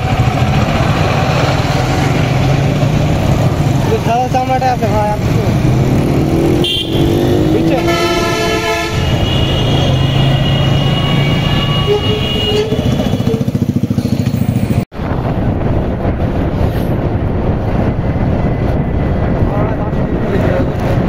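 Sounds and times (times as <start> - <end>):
passing motorcycle engine pulsing: 0.0 - 21.0
road and wind noise: 0.0 - 21.0
motorcycle engine running: 9.0 - 16.5.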